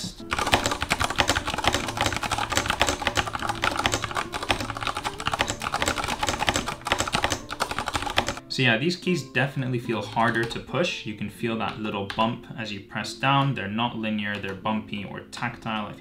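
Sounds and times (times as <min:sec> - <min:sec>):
mechanical keyboard typing: 0:00.0 - 0:08.4, 0:10.0 - 0:10.6
background music: 0:00.0 - 0:16.0.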